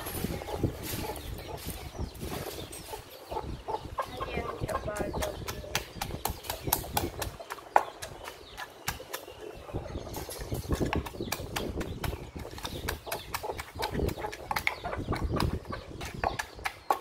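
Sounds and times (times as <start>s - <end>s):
wooden pestle pounding in mortar: 4.9s - 9.4s, 10.8s - 17.0s.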